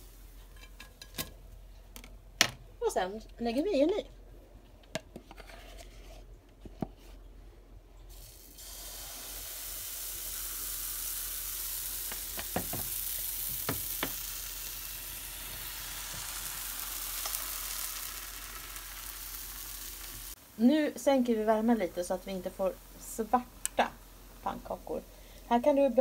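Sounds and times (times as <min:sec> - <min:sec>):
pancake batter sizzling in pan: 0:08.1 - 0:25.6.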